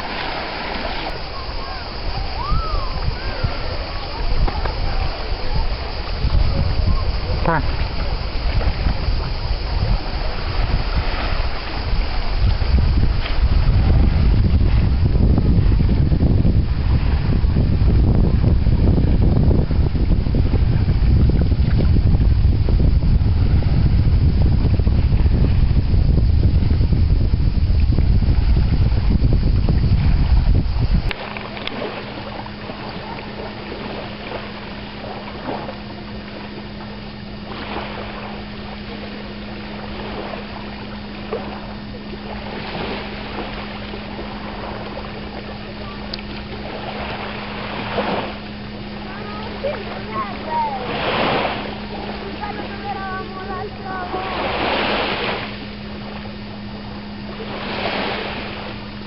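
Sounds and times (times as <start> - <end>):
lapping water: 0.0 - 12.2, 39.8 - 54.4
constant low hum: 0.0 - 59.0
sea water splashing: 0.0 - 59.0
wind buffeting microphone: 0.0 - 59.0.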